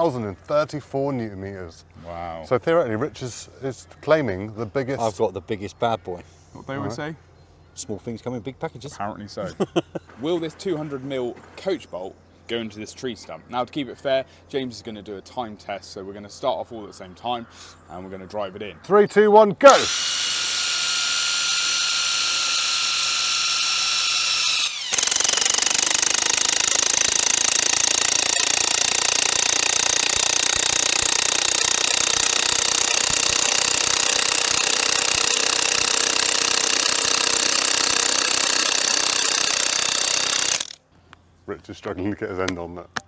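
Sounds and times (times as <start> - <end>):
impact wrench motor whine: 19.7 - 40.8
impact wrench hammering: 24.6 - 40.8.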